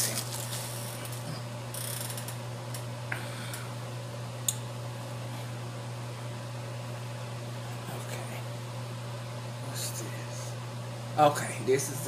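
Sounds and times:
plastic packaging rustling: 0:00.0 - 0:01.2
steady low hum: 0:00.0 - 0:12.0.

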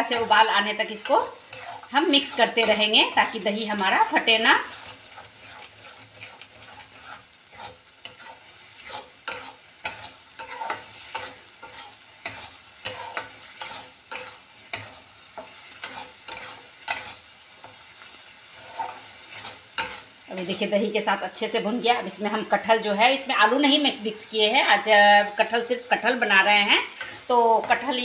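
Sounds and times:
metal spatula scraping pan: 0:00.0 - 0:20.7
sizzling: 0:00.0 - 0:28.0.

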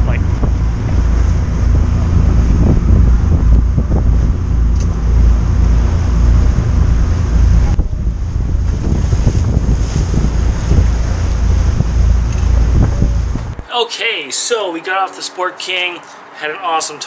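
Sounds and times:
boat engine drone: 0:00.0 - 0:13.6
wind buffeting microphone: 0:00.0 - 0:13.7
water rushing along hull: 0:00.0 - 0:17.0.

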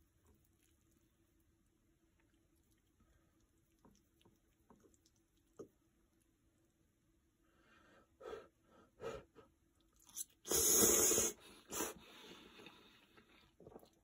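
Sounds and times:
chewing: 0:00.0 - 0:06.3, 0:09.8 - 0:10.4, 0:12.6 - 0:14.0
hissing slurp: 0:10.0 - 0:12.0
mouth sounds: 0:10.1 - 0:12.0.

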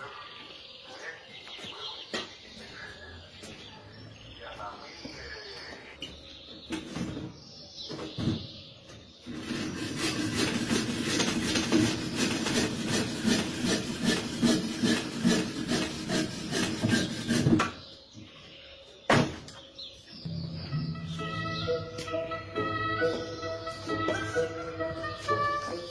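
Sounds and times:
hand saw cutting wood: 0:09.3 - 0:17.8.

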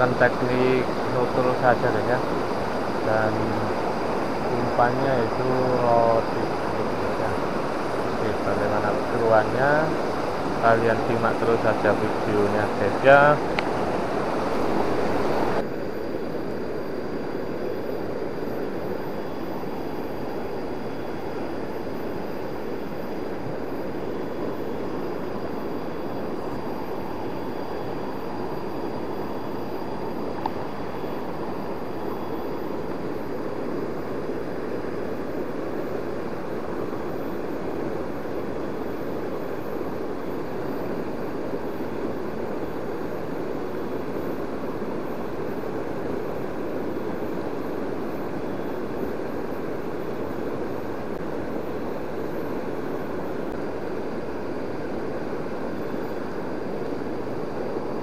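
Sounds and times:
river rushing: 0:00.0 - 0:15.6.

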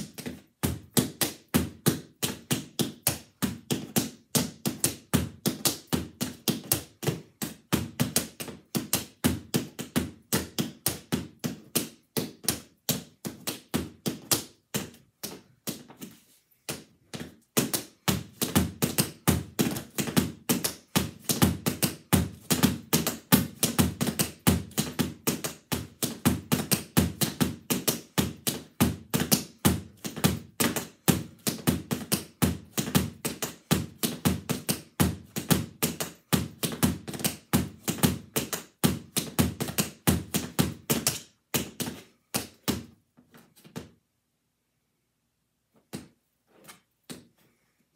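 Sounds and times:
tap shoes clicking on hard mat: 0:00.0 - 0:44.0.

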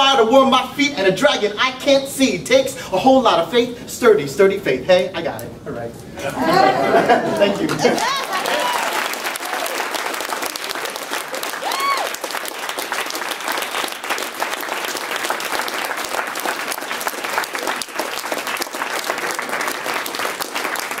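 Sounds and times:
audience applauding: 0:06.5 - 0:21.0.

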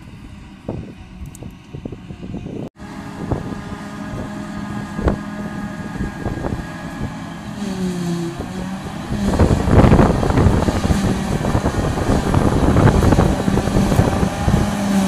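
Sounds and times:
wind buffeting microphone: 0:00.0 - 0:15.0
forage harvester chopping grass: 0:03.4 - 0:15.0.

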